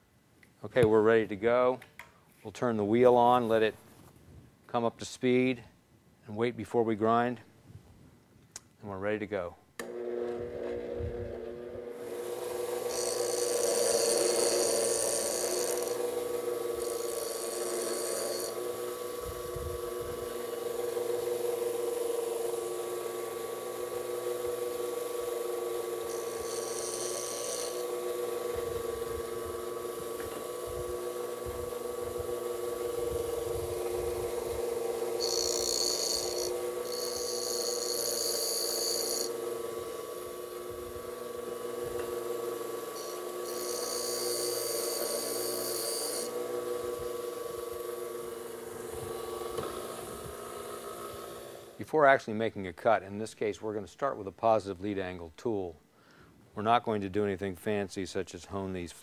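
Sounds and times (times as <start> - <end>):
bench grinder humming: 9.8 - 51.8
tool bit grinding hiss: 12.0 - 41.0, 41.6 - 51.8.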